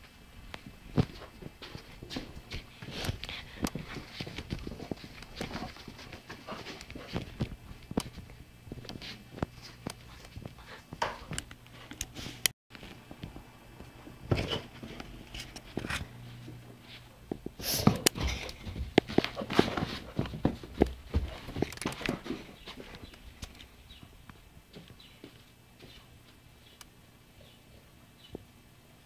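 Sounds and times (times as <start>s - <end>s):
footsteps and thumps: 0.6s - 11.5s, 17.3s - 26.0s.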